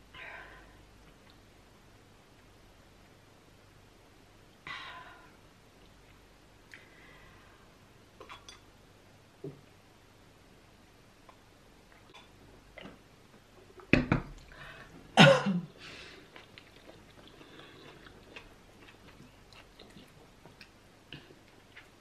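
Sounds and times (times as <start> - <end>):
soft chewing and mouth clicks: 1.0 - 1.5, 5.8 - 6.9, 8.2 - 8.7, 11.2 - 14.6, 16.2 - 22.0.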